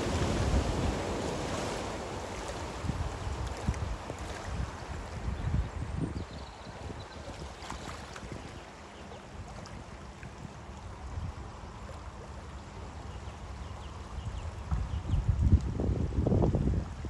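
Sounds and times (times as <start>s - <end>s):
floodwater rushing: 0.0s - 5.4s.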